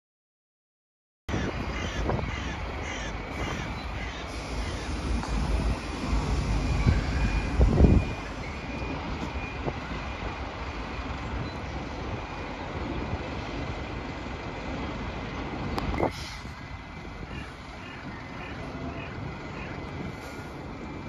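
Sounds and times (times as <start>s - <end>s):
bus engines running: 1.3s - 21.0s
traffic: 1.3s - 21.0s
reversing alarm beeping: 1.4s - 13.0s.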